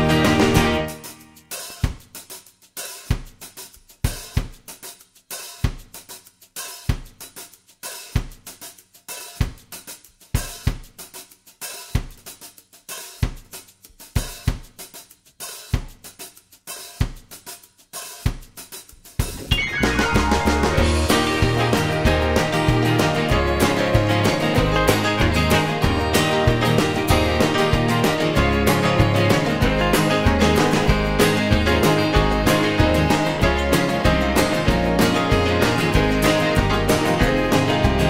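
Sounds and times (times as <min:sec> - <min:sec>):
drum kit beat: 0:00.0 - 0:38.0.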